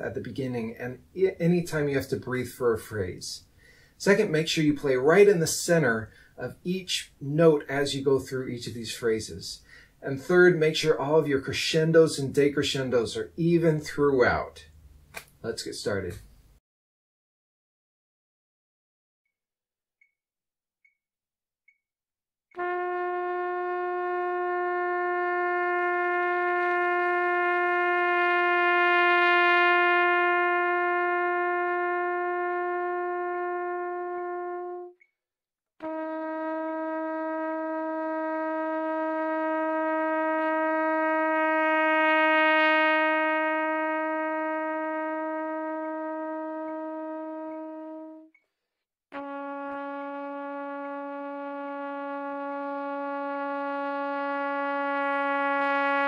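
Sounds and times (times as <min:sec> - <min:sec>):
breath: 0:03.5 - 0:04.0, 0:06.1 - 0:06.4, 0:09.6 - 0:10.0, 0:48.4 - 0:48.9
trumpet long held notes: 0:22.6 - 0:35.0, 0:35.8 - 0:48.3, 0:49.1 - 0:56.0.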